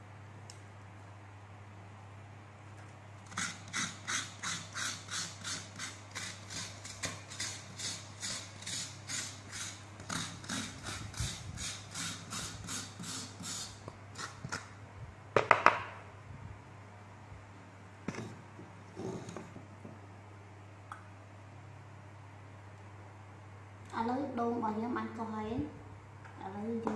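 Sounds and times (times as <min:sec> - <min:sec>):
spatula scraping coconut shell: 0:03.3 - 0:14.7.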